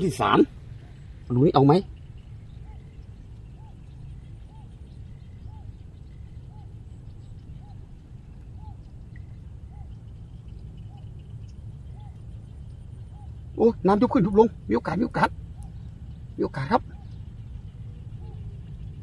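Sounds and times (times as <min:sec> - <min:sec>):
steady low rumble: 0:00.0 - 0:19.0.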